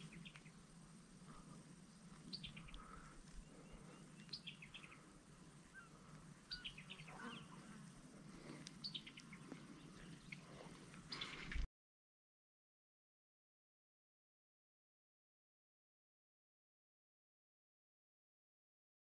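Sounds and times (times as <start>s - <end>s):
songbird singing: 0.0s - 11.7s.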